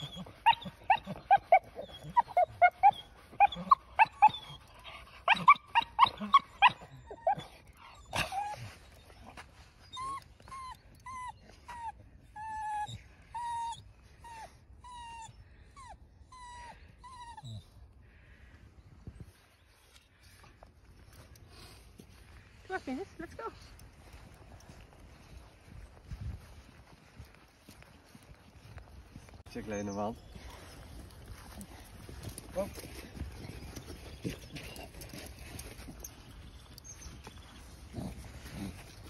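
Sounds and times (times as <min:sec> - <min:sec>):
dog whining and yipping: 0:00.0 - 0:17.7.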